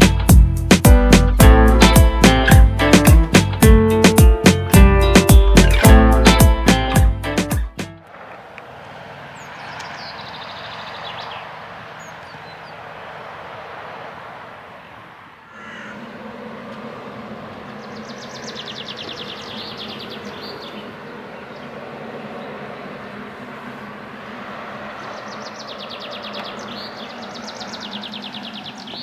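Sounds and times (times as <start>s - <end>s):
birds chirping: 8.3s - 13.7s, 15.4s - 29.0s
steady rushing noise: 10.9s - 26.1s
rapid rattling bird call: 15.5s - 22.7s.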